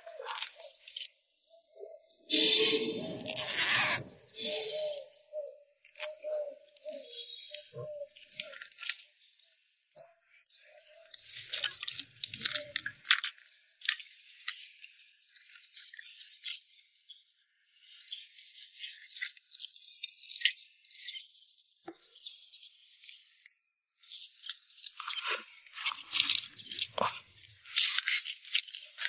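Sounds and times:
tape ripping off roll: 3.2s - 4.1s.

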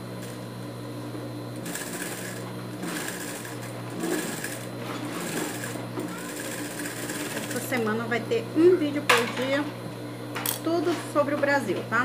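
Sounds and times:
sewing machine stitching: 1.6s - 7.6s
sewing machine motor humming: 1.6s - 8.0s.

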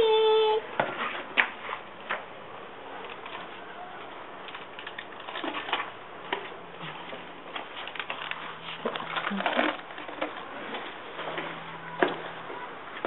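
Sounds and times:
wrapped candy rustling in bucket: 4.4s - 11.3s.

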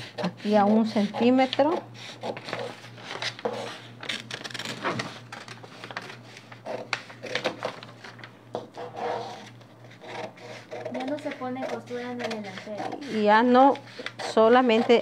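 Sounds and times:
paper crackling and rustling: 2.2s - 8.4s
scissors snipping paper: 9.4s - 15.0s.

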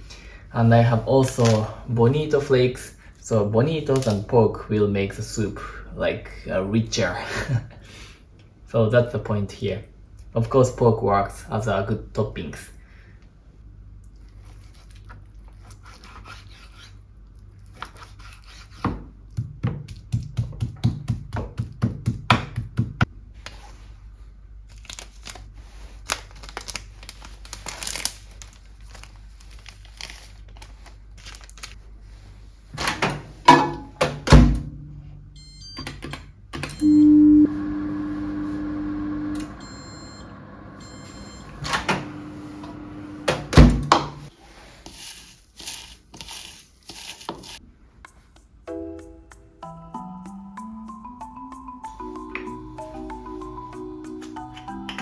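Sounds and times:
paper packet rustling: 0.8s - 2.2s, 24.6s - 31.8s, 44.8s - 47.6s
knife chopping on cutting board: 18.2s - 23.1s
microwave oven humming: 36.4s - 44.3s
short beeps: 36.8s - 37.5s, 39.6s - 41.6s.

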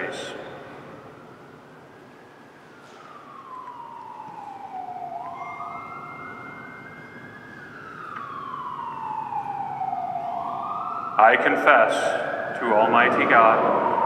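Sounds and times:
faint steady high tone: 0.0s - 8.8s
siren wailing: 0.0s - 14.0s.

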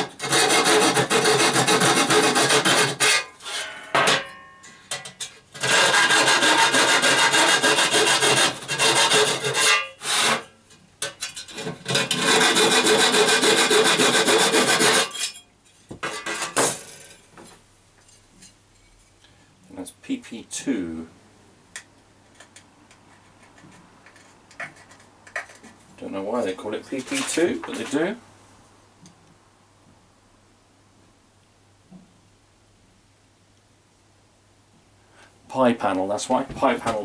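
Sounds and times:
hand tool scraping metal: 0.0s - 16.6s, 22.4s - 25.8s.

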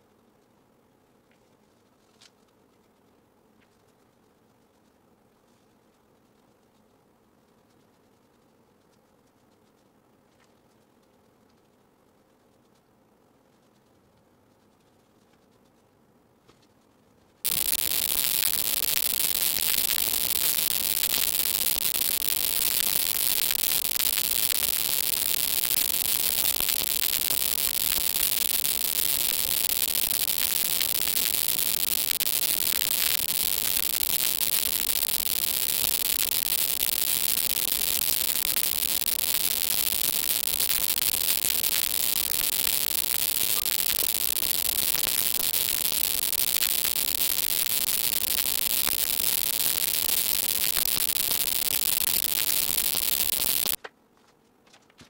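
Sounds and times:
steady static hiss: 17.5s - 53.8s.

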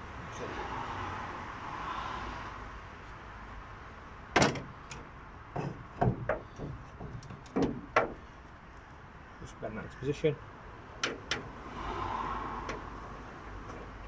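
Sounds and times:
metal clunks of car bonnet: 4.4s - 5.0s, 5.6s - 8.2s.

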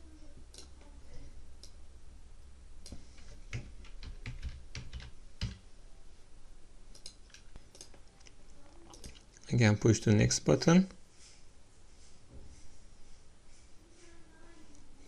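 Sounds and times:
computer keyboard tapping: 2.8s - 5.6s.

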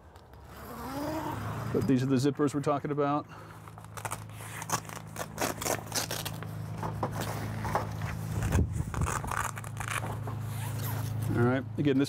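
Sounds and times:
steady low hum: 0.0s - 12.0s
zipper pulled in raspy tugs: 0.4s - 2.0s, 3.6s - 6.4s, 7.2s - 11.4s.

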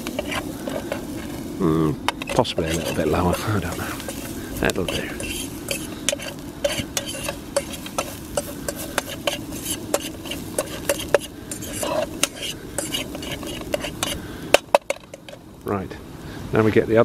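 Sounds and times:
fork scraping metal frying pan: 0.0s - 1.5s, 2.1s - 15.4s
low background noise: 0.0s - 17.0s.

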